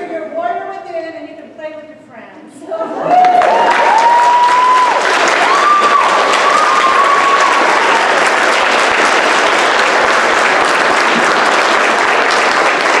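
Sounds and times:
audience applauding: 3.0s - 13.0s.

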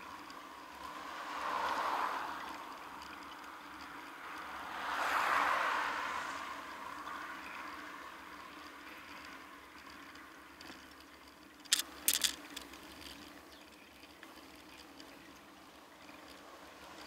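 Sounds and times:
bicycle tyre hum: 0.0s - 17.0s
sharp rattles: 7.4s - 17.0s.

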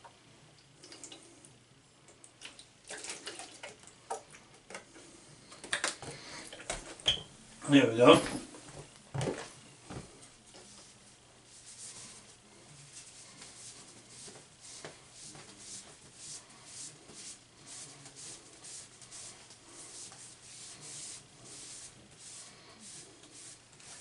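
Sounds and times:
towel rubbing bowling ball: 10.7s - 24.0s.

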